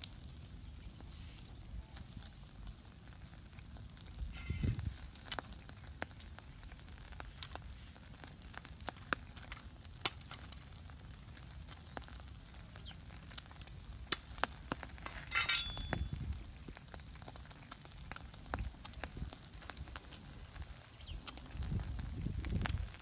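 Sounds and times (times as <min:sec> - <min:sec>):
small wood fire crackling: 0:00.0 - 0:23.0
bamboo pieces clattering: 0:15.0 - 0:16.1.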